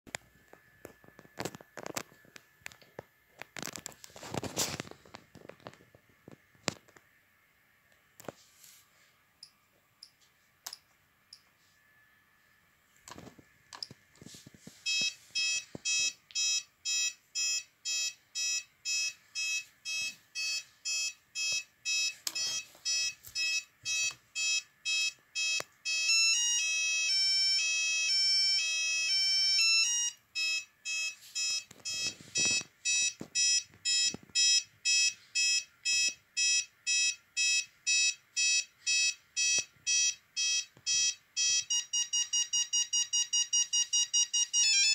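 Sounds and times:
alarm keypad pulsed beeping: 14.9 - 44.9.

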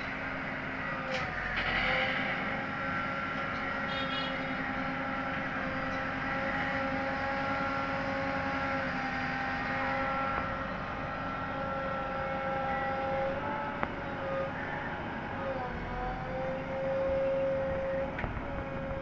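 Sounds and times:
diesel engine under load: 0.0 - 19.0
backhoe digging soil: 0.9 - 4.6.

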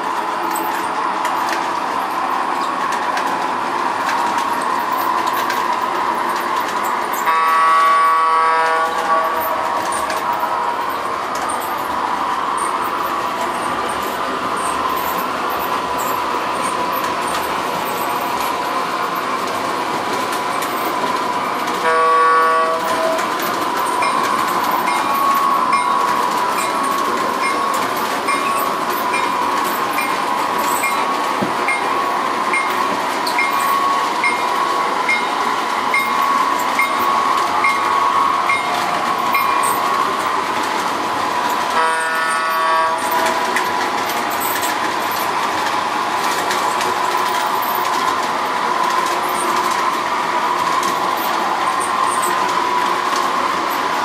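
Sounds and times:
toy train rolling on track: 0.0 - 54.0
toy train horn: 7.2 - 10.0, 21.8 - 23.3, 41.7 - 43.4.

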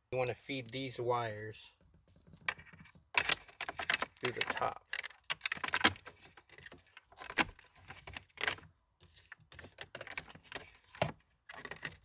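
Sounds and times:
plastic trim panel clicks and rattles: 2.2 - 8.7.

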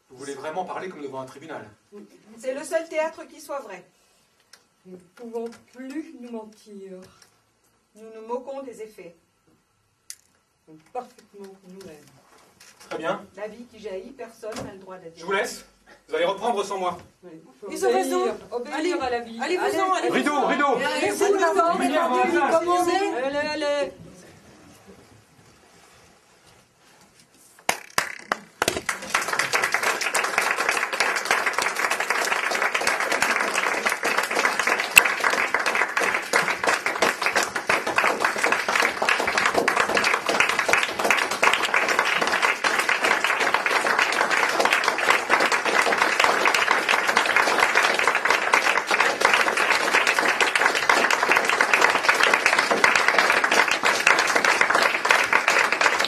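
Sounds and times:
audience applauding: 27.7 - 56.0.

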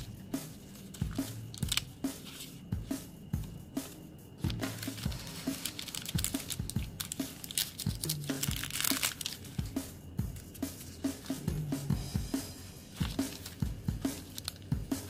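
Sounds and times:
paper pages rustling: 0.0 - 2.6, 3.8 - 11.3, 12.9 - 14.8
background music with steady beat: 0.0 - 15.0.

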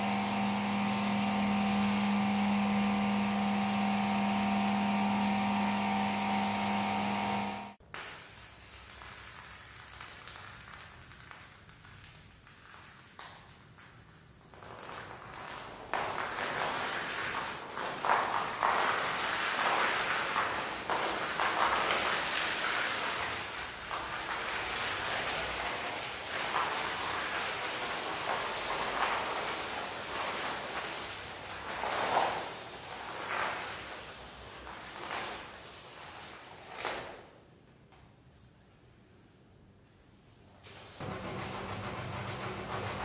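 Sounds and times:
wet rug being scrubbed: 0.0 - 7.6, 14.5 - 37.0, 41.0 - 43.0.

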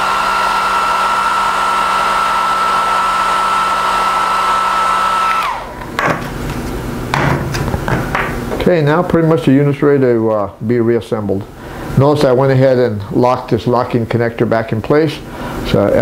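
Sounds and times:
heat gun fan whining: 0.0 - 10.1.

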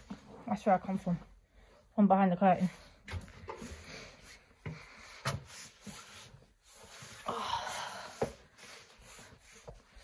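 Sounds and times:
noisy breath: 2.8 - 10.0.

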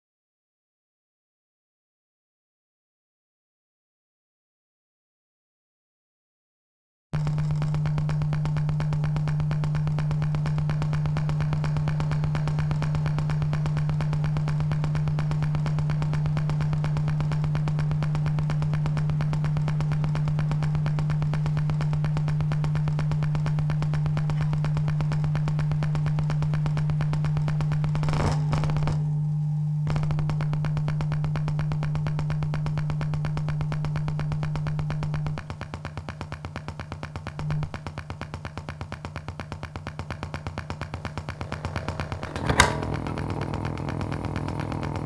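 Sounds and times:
distorted electric guitar drone: 7.2 - 35.4, 40.8 - 45.0.

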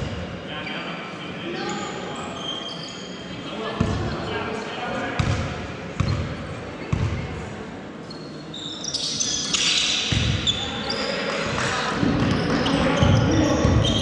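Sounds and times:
basketball bouncing on court: 5.2 - 7.2, 10.1 - 10.6, 12.0 - 14.0
sneakers squeaking on court: 5.2 - 7.4, 8.0 - 14.0.

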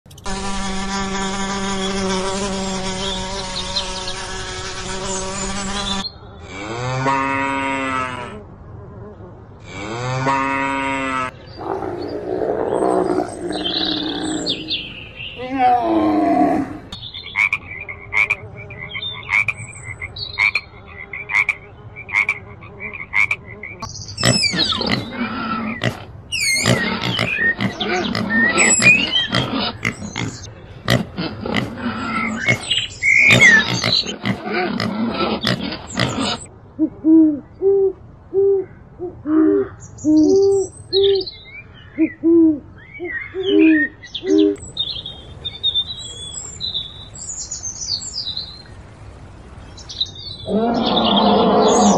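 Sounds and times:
animal squeals: 24.2 - 36.5.

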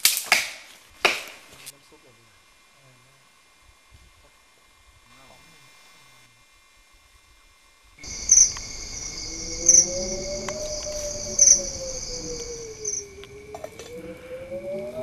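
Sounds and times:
crickets trilling: 0.0 - 15.0
low wavering tone: 8.0 - 15.0.

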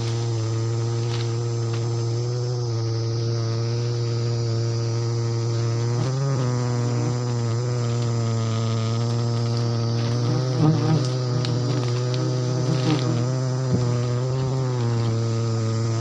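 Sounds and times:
bee flying close past: 0.0 - 16.0
bees buzzing: 0.0 - 16.0.

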